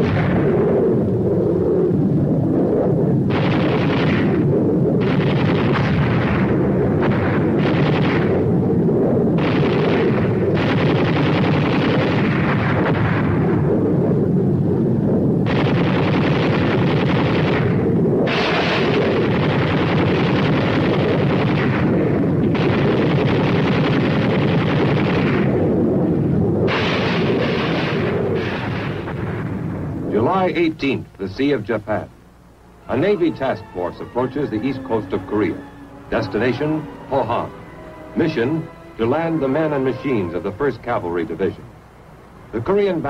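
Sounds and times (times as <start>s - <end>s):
explosions: 0.0s - 2.5s, 3.2s - 8.8s, 9.4s - 14.5s, 15.1s - 30.1s
machine-gun fire: 3.3s - 8.5s, 9.4s - 13.6s, 15.4s - 25.6s, 26.7s - 29.6s.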